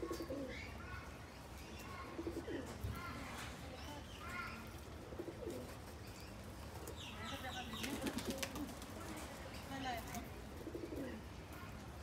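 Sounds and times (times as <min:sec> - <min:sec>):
pigeons cooing: 0:00.0 - 0:01.1, 0:01.8 - 0:03.2, 0:04.3 - 0:06.0, 0:10.3 - 0:11.3.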